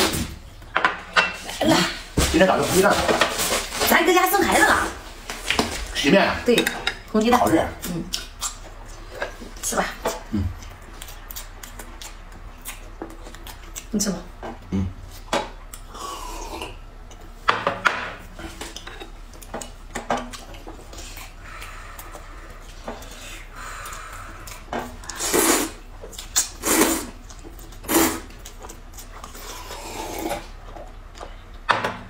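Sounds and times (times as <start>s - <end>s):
loud noodle slurps: 25.1s - 25.8s, 26.4s - 27.2s, 27.8s - 28.3s.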